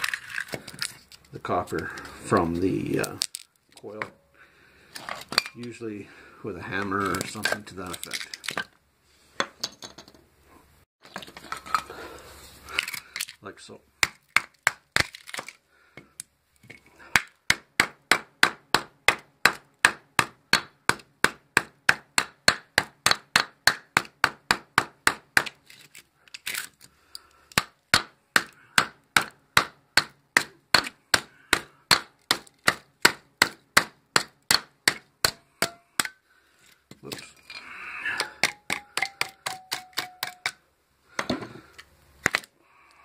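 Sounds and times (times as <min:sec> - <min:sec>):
hammer striking metal: 0:34.5 - 0:36.1, 0:38.4 - 0:40.6.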